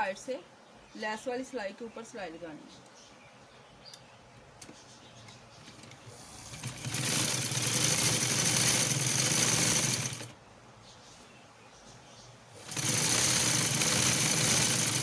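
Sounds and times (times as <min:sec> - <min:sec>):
sewing machine stitching: 0:06.1 - 0:10.3, 0:12.6 - 0:15.0.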